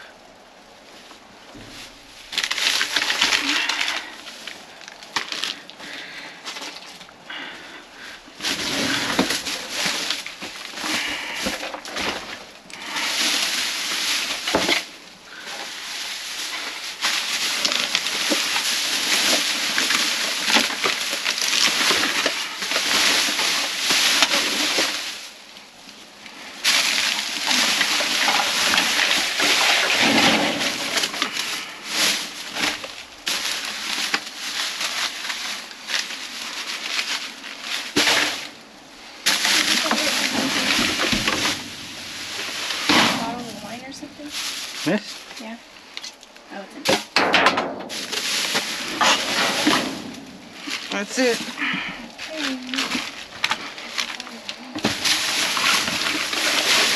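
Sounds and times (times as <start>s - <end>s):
plastic bags crinkling: 1.7s - 56.9s.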